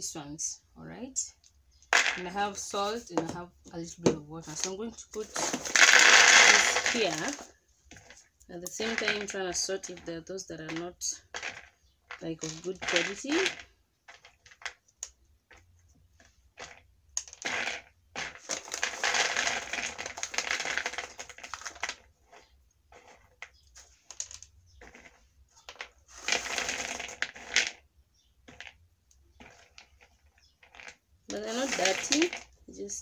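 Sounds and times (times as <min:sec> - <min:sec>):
nuts rattling: 0:01.5 - 0:03.3, 0:04.4 - 0:33.0
nuts clicking on plastic: 0:05.6 - 0:32.6.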